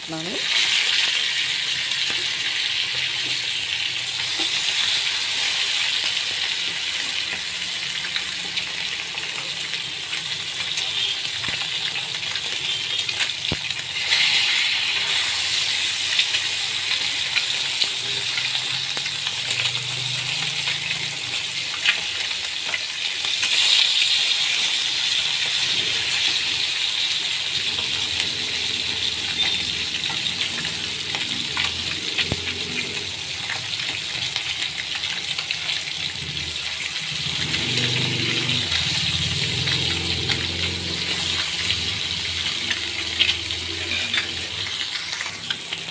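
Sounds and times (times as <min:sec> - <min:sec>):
fish sizzling in oil: 0:00.0 - 0:45.9
metal turner scraping pan: 0:14.0 - 0:15.9, 0:42.7 - 0:45.6.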